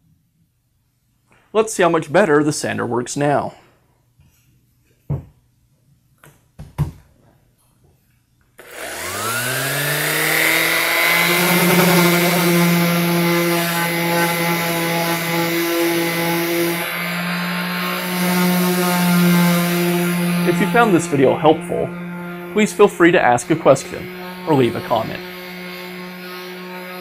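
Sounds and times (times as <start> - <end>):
orbital sander whining: 8.6 - 27.0
sanding pad hissing on wood: 8.7 - 27.0.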